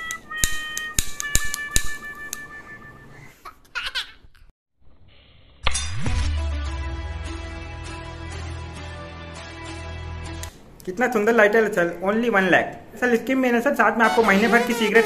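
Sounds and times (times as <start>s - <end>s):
music with rising sweep: 6.0s - 10.5s.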